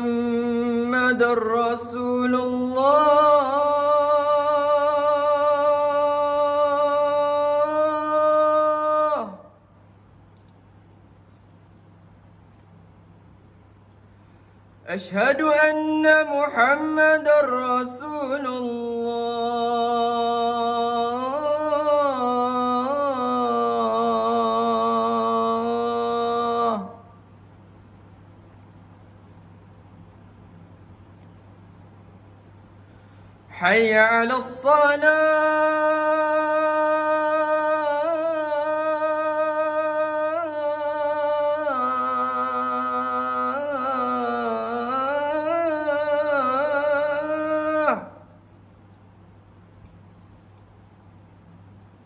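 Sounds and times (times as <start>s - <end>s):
man chanting call to prayer: 0.0s - 9.6s, 14.9s - 27.2s, 33.5s - 48.4s.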